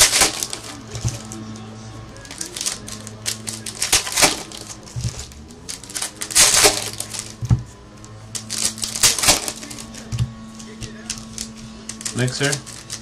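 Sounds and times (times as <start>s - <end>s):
plastic wrapper crinkling and tearing: 0.0s - 1.4s, 2.2s - 7.4s, 8.3s - 10.1s, 10.9s - 13.0s.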